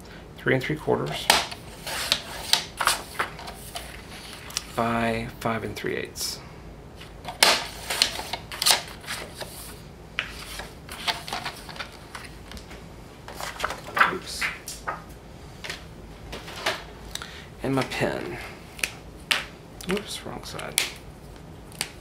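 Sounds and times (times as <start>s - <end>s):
paper rustling and scraping: 1.7s - 4.8s, 7.0s - 12.4s, 13.3s - 14.5s.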